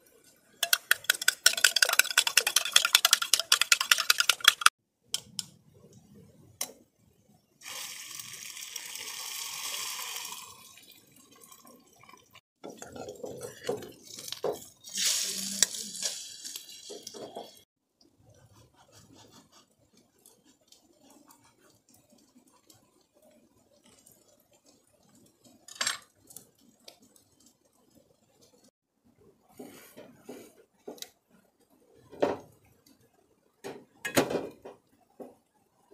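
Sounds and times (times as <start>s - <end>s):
spoon clattering on steel mug: 0.6s - 4.7s
liquid hissing and splashing: 14.0s - 17.6s.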